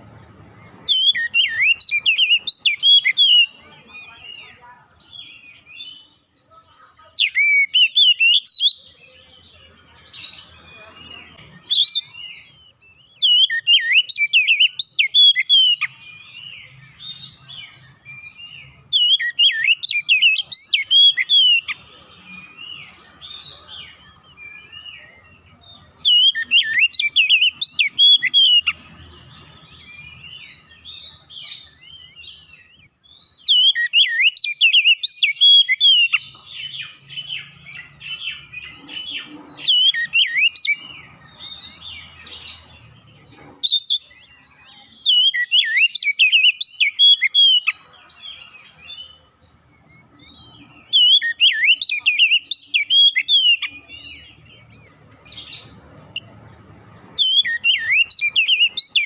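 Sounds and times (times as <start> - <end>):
bird singing whistled phrases: 0.8 - 3.6, 7.2 - 9.0, 11.6 - 17.5, 18.2 - 21.8, 26.0 - 28.8, 32.5 - 36.3, 39.6 - 40.8, 45.0 - 47.8, 50.8 - 53.8, 57.2 - 59.0.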